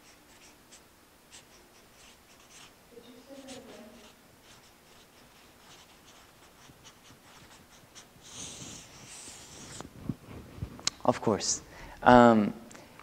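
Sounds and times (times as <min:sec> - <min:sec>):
marker scratching on paper: 0:00.0 - 0:09.9.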